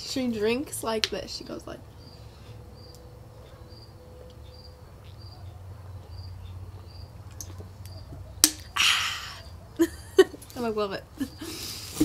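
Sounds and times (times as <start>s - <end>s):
cricket chirping: 1.8s - 10.3s.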